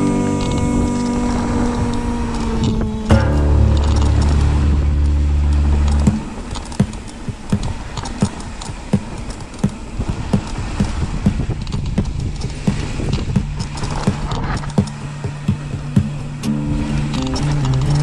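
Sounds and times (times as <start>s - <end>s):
low sustained note: 0.0s - 8.0s, 14.3s - 18.0s
rock music chord: 3.1s - 7.1s
drum hits: 3.1s - 17.6s.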